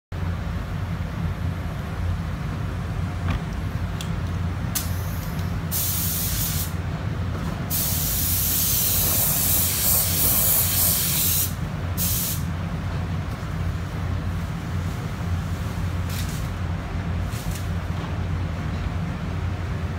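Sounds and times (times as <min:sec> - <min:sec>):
paint spray gun hissing: 0:04.8 - 0:06.8, 0:07.7 - 0:12.5.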